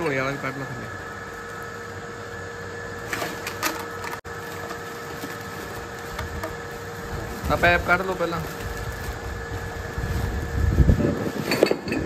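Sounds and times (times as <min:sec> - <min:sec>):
steady background hum: 0:00.0 - 0:12.0
plastic sack crinkling: 0:03.0 - 0:11.5.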